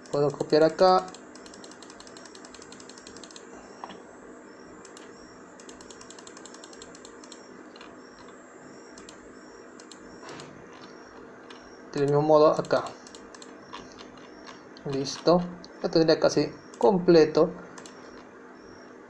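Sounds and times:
computer mouse clicking: 0.0s - 4.0s, 4.8s - 9.2s, 9.8s - 15.4s, 17.7s - 18.3s
faint steady hum: 0.0s - 19.0s.

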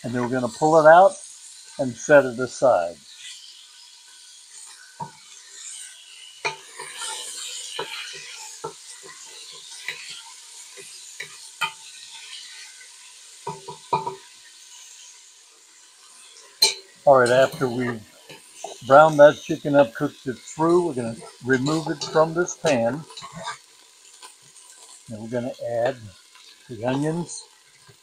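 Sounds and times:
chicken sizzling in oil: 0.0s - 28.0s
spatula scraping and knocking pan: 6.4s - 12.4s, 13.4s - 14.3s, 16.6s - 27.9s.

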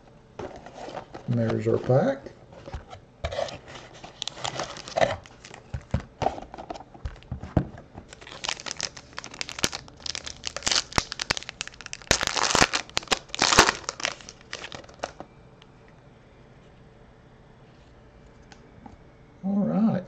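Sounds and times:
foil wrapper crinkling and tearing: 3.8s - 5.7s, 8.1s - 15.2s.

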